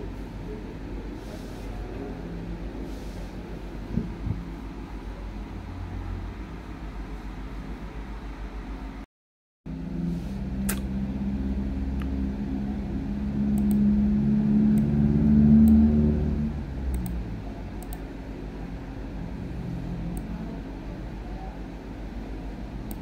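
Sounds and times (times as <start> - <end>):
vehicle engine humming: 9.7 - 23.0.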